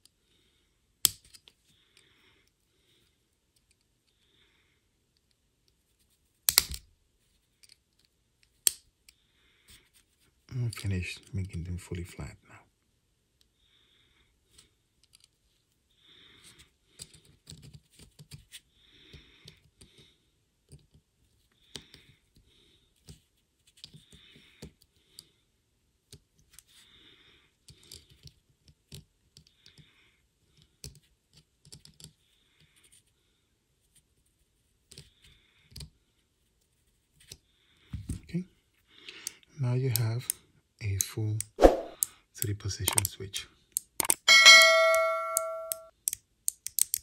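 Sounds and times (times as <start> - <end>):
pliers clicking and scraping: 43.8 - 47.0.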